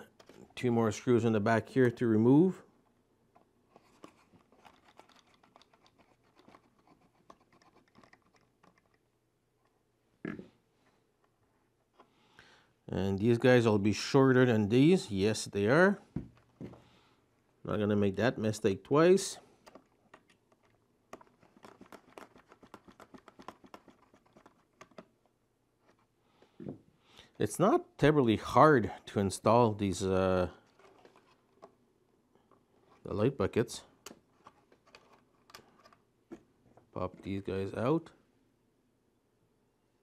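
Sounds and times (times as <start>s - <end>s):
hands handling hard plastic: 3.3s - 9.0s, 19.5s - 26.8s, 30.5s - 31.8s, 33.9s - 37.6s
small plastic parts clicking: 3.8s - 9.0s.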